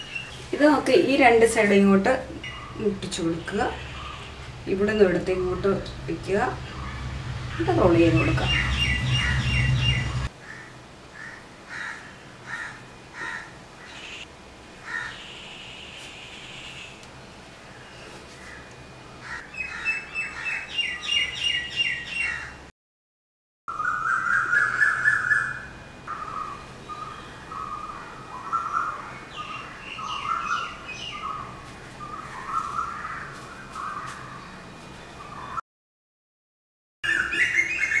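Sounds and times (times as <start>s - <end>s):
high repeated bird chirps: 2.4s - 2.8s, 6.6s - 10.3s, 37.0s - 38.0s
lower bird calls: 2.4s - 2.8s, 23.7s - 34.6s.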